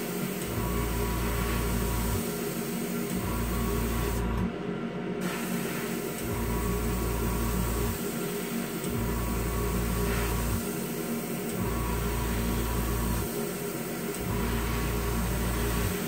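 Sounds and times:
compressor and fan hum: 0.0 - 16.0
airbrush spray hissing: 5.2 - 6.2.

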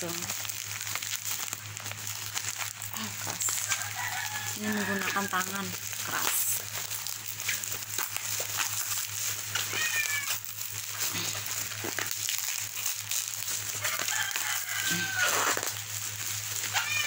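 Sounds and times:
plastic wrapping being torn: 0.0 - 17.0
cat meowing: 9.6 - 10.4, 16.7 - 17.0.

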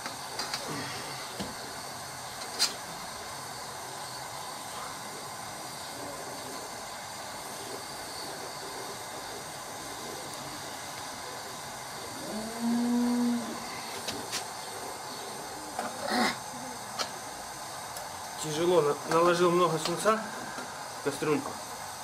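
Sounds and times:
gas burner hissing: 0.0 - 22.0.

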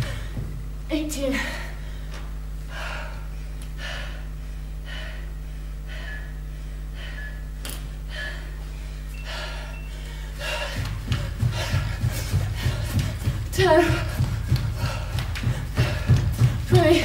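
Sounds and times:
steady low hum: 0.0 - 17.0
woman breathing hard: 1.2 - 17.0.

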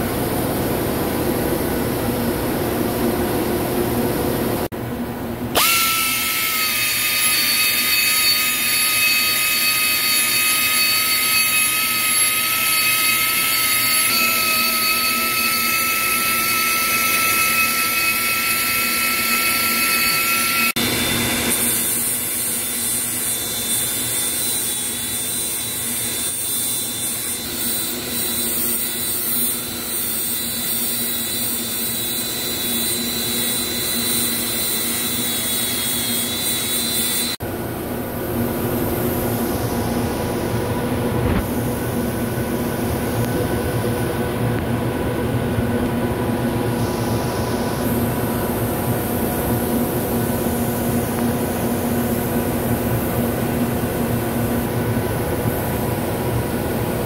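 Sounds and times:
machine-shop hum: 0.0 - 57.0
hand grinder whining on steel: 5.6 - 37.4.

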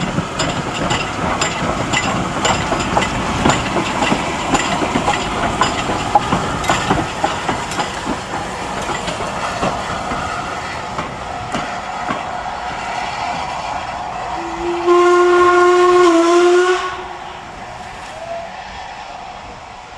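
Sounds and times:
steam hissing: 0.0 - 19.9
locomotive side rods clanking: 0.1 - 10.0.

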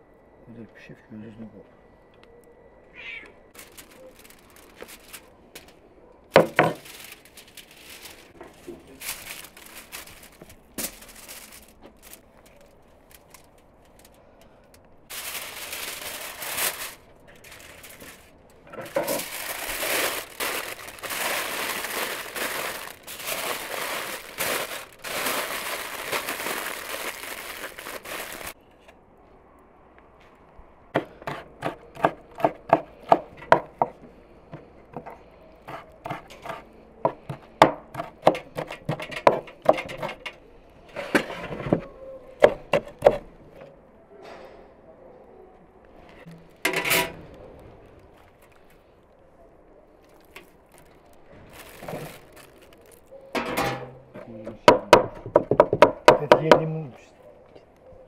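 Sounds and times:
aluminium foil crinkling: 3.5 - 28.6, 47.8 - 49.1, 49.9 - 53.4.

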